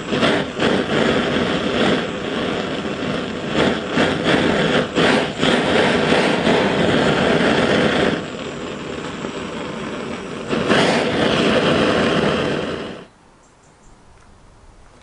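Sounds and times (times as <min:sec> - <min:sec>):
blowtorch roaring: 0:00.0 - 0:13.1.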